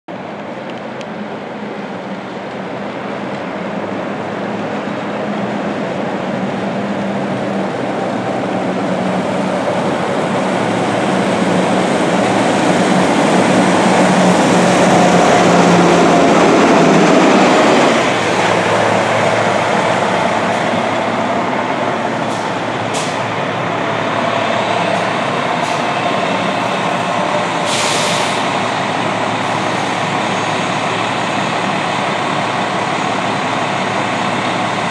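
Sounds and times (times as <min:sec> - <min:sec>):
coach diesel engine passing: 0:01.2 - 0:34.9
tyres hissing on wet pavement: 0:09.0 - 0:34.9
air hiss burst: 0:27.6 - 0:28.5.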